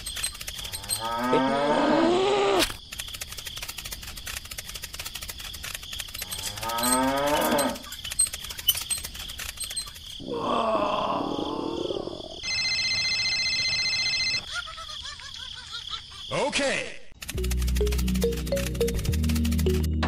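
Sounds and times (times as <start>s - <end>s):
cow mooing: 0.7s - 2.3s, 6.3s - 7.9s.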